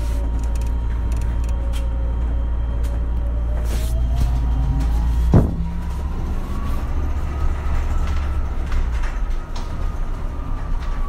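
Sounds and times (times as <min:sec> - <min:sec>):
electric drive whine: 0:00.0 - 0:09.2
bus engine hum: 0:00.0 - 0:11.0.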